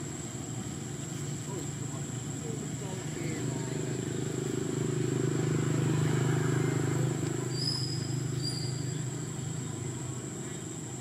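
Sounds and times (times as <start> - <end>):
motor engine droning: 0.0 - 11.0
short high whistles: 7.5 - 9.0.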